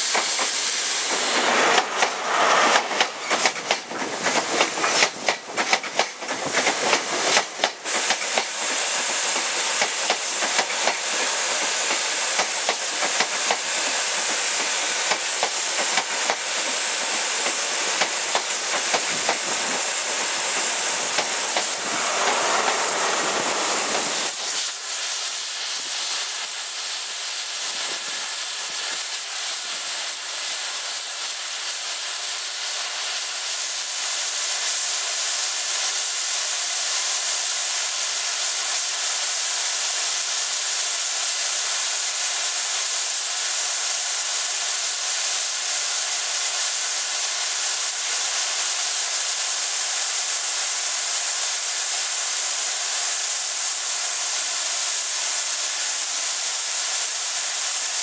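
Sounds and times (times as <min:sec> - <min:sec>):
diesel train passing: 0:00.0 - 0:26.2
steam hissing: 0:00.0 - 0:58.0.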